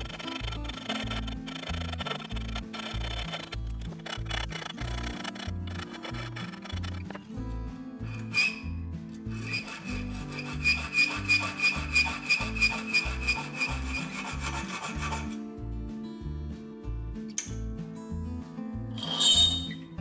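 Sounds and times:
hacksaw cutting steel: 0.0s - 7.3s, 8.0s - 8.7s, 9.3s - 15.4s, 19.0s - 19.8s
background music with steady beat: 0.0s - 20.0s.

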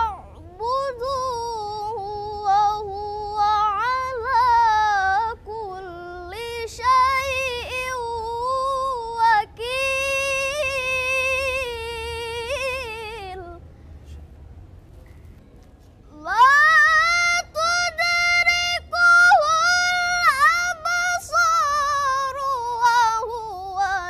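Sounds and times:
girl chanting: 0.0s - 13.4s.

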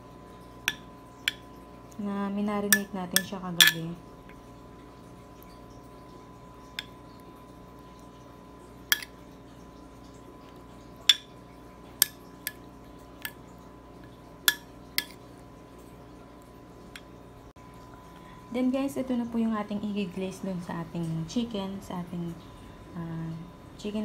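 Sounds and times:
faint steady hum: 0.0s - 24.0s
metal spoon clinking on glass: 2.8s - 3.9s.

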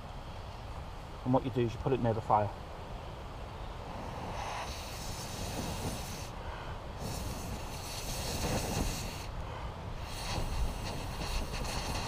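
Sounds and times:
breath hissing through bellows tube: 3.9s - 12.0s.

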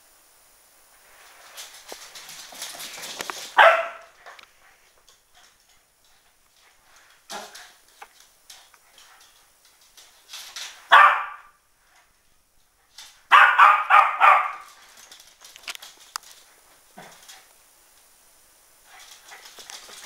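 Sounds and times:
dog barking: 3.6s - 4.1s, 10.9s - 11.6s, 13.3s - 14.7s.

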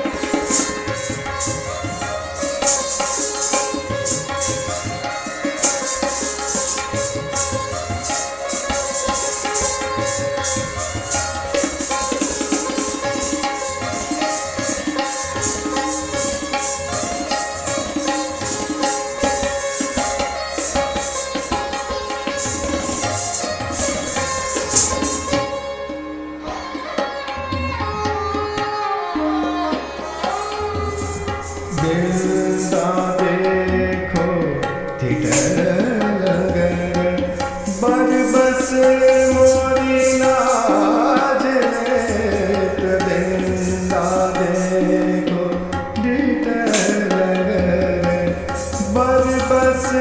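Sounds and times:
tabla rhythm: 0.0s - 50.0s.

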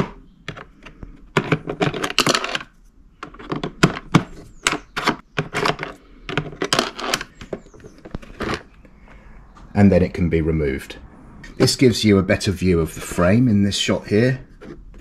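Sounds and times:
hard plastic clicks and rattles: 0.0s - 8.9s.

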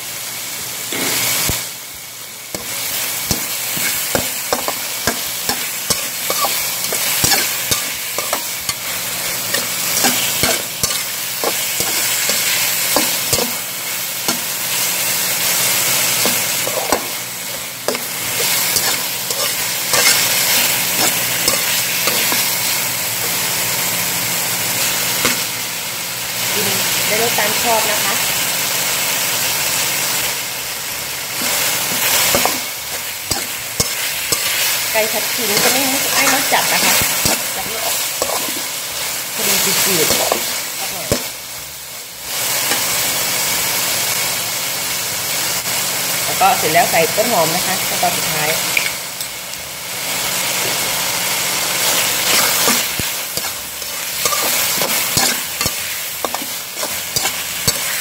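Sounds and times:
food sizzling in a wok: 0.0s - 58.0s
metal spatula scraping a pan: 3.3s - 13.6s, 16.2s - 23.4s, 31.4s - 38.7s, 51.8s - 58.0s
spatula clinking on wok: 54.2s - 58.0s.

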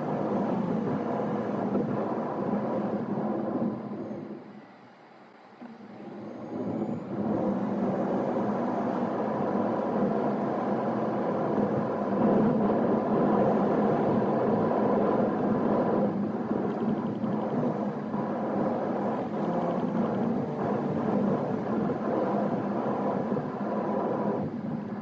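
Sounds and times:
car road and engine noise: 0.0s - 25.0s.

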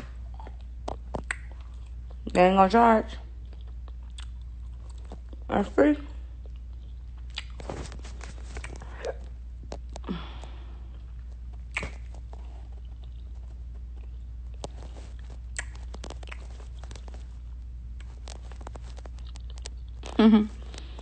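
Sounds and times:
person chewing: 0.0s - 2.2s, 3.4s - 5.5s, 6.4s - 21.0s
steady low hum: 0.0s - 21.0s
mouth clicks: 11.7s - 12.0s.

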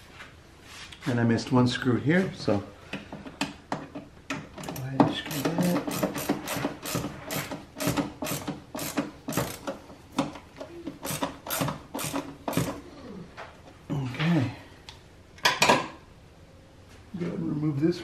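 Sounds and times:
ratcheting screwdriver clicking: 4.7s - 9.8s.

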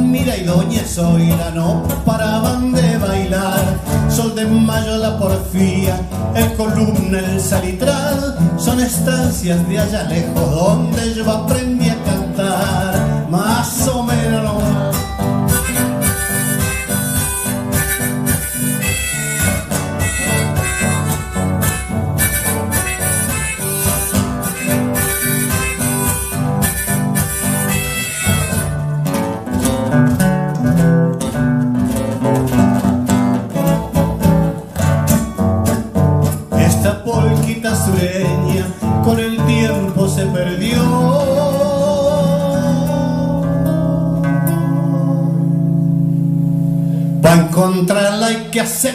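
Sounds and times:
acoustic guitars playing polka: 0.0s - 48.9s
held wavering note: 15.5s - 28.8s.

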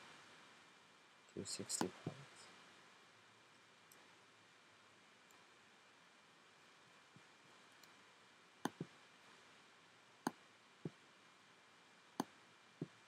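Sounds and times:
low hiss: 0.0s - 13.0s
computer mouse clicks: 8.6s - 8.9s, 12.2s - 12.4s.

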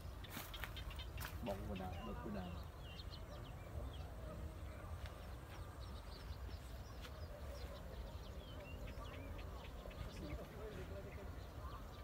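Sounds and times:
birds chirping and twittering: 0.0s - 12.0s.

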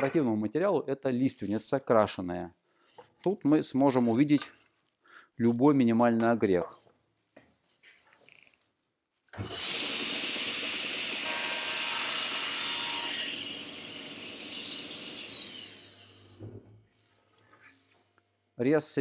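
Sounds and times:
table saw cutting wood board: 9.4s - 16.5s.

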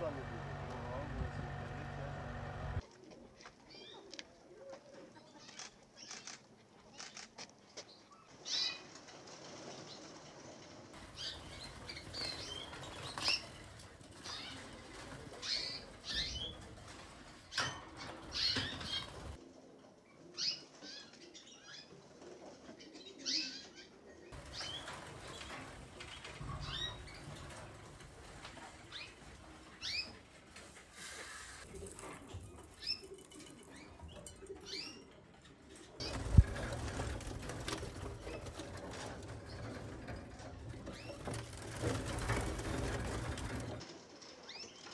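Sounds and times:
wings fluttering in cages: 0.0s - 4.2s, 8.2s - 44.9s
canaries chirping: 11.0s - 19.4s, 23.0s - 30.2s, 31.1s - 44.9s
sharp clicks and rustling: 24.4s - 43.9s.

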